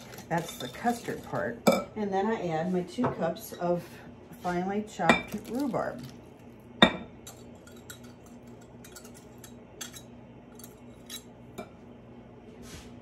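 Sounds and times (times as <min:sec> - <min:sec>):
glass cup clinking on bowl: 0:06.8 - 0:08.2.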